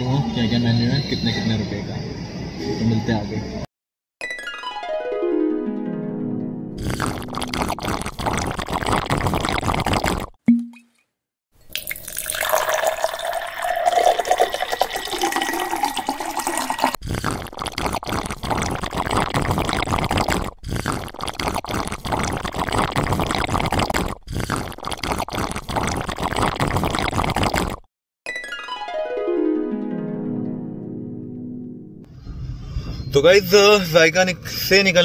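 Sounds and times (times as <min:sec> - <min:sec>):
water poured into glass: 0:06.9 - 0:10.3, 0:11.6 - 0:27.8.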